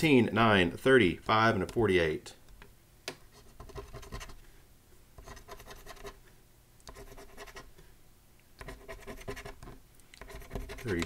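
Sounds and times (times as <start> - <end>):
coin scratching a ticket: 6.9 - 7.7, 8.6 - 11.0.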